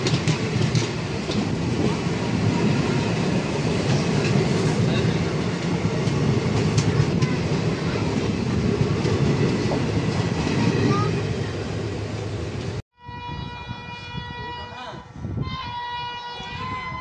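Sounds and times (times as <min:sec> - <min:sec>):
train wheel clatter: 0:00.0 - 0:11.2
train coaches rumbling past: 0:00.0 - 0:17.0.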